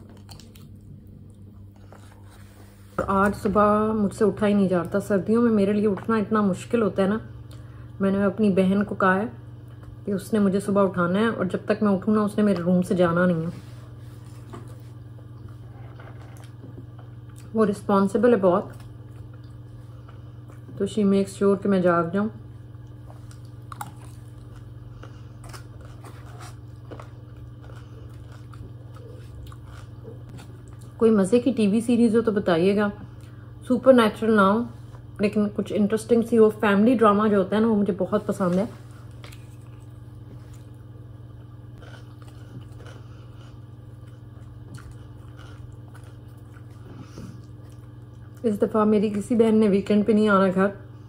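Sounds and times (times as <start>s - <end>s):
quiet chewing: 0.0s - 3.5s, 13.6s - 17.6s, 18.6s - 20.8s, 22.6s - 31.0s, 38.7s - 48.6s
steady low hum: 0.0s - 51.0s.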